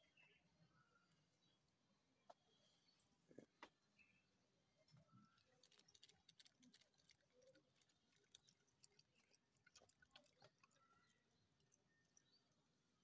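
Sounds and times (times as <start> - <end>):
dog chewing: 5.9 - 12.1.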